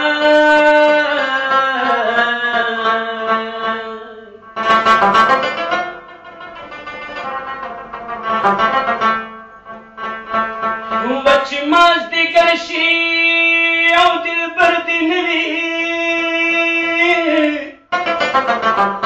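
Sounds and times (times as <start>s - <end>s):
man singing a long held note: 0.0s - 4.5s, 11.0s - 17.8s
plucked rabab: 0.0s - 19.0s.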